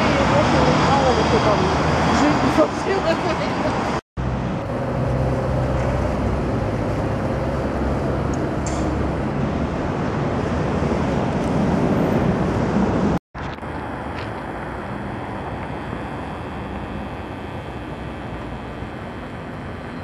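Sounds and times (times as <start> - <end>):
tram electric hum: 0.0 - 20.0
wheels rumbling on rails: 0.0 - 20.0
faint whine: 13.4 - 20.0.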